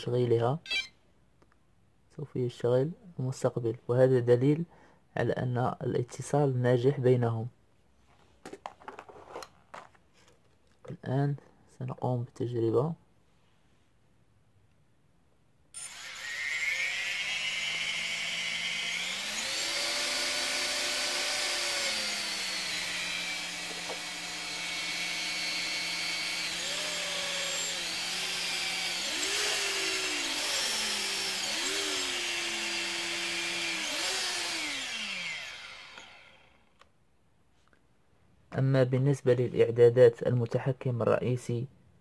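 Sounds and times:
electric motors whining: 15.8 - 36.7.

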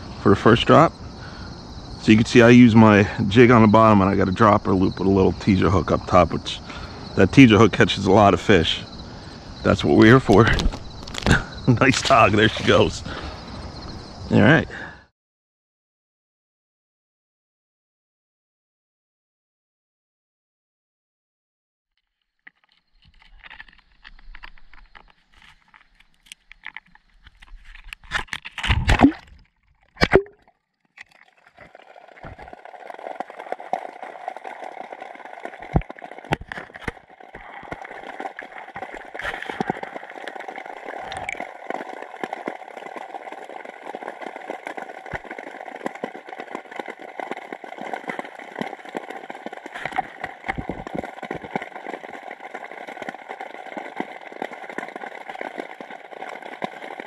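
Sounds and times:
muffled underwater hiss: 8.2 - 14.9, 37.3 - 41.9
camera splashing into water: 28.0 - 34.6.

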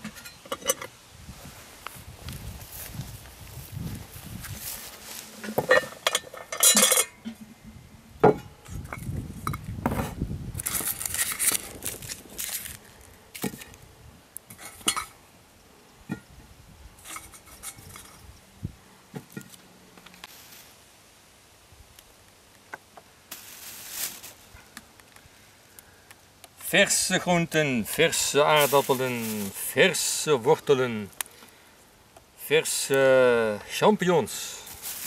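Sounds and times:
pots and cutlery clinking: 5.6 - 7.3.

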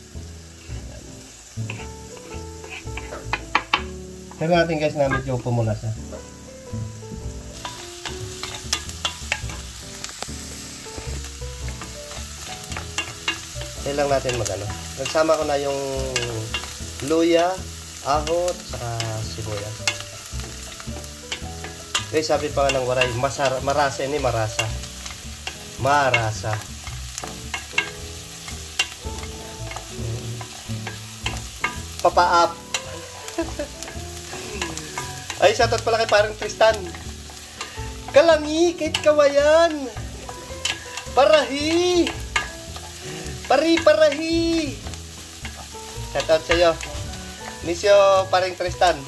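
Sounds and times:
onions sizzling in a pan: 0.0 - 49.0
wooden spatula scraping a pan: 0.6 - 5.4.

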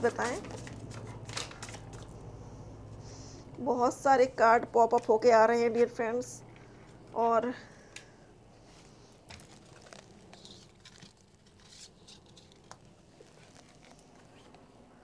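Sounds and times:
cards rustling: 0.0 - 2.3, 8.6 - 14.6.

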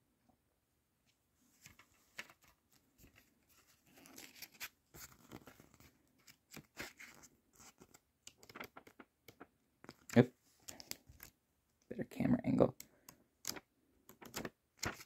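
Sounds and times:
paper rustling: 1.6 - 11.4, 13.4 - 15.0.

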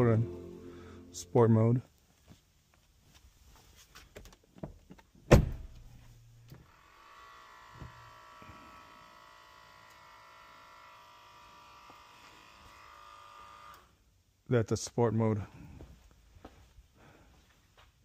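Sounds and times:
car door shutting: 5.3 - 5.9
electric whine of air suspension: 6.6 - 13.9.

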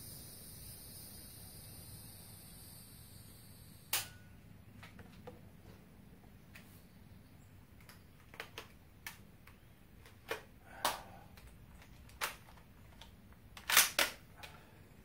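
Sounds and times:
rifle metallic clicks: 12.1 - 14.2.

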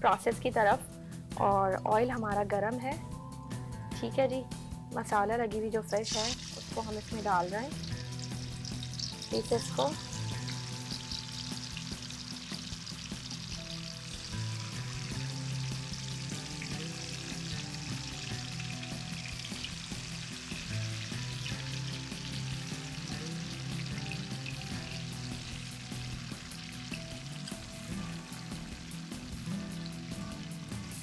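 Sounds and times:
fish sizzling in oil: 6.0 - 31.0
oil spattering crackle: 7.8 - 19.8.

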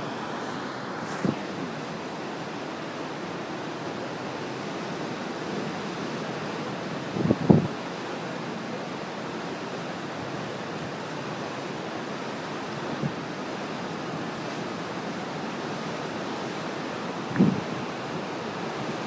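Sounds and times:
wind on microphone: 1.0 - 2.0, 6.9 - 7.8, 12.8 - 13.4, 17.1 - 19.0.

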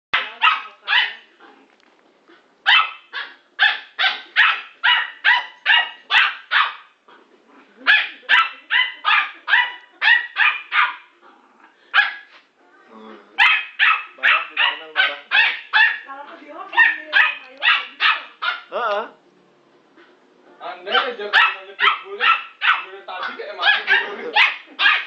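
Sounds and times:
small dog barking: 0.2 - 1.3, 2.6 - 6.9, 7.8 - 11.1, 11.9 - 12.3, 13.4 - 16.1, 16.7 - 18.8, 20.9 - 25.0.

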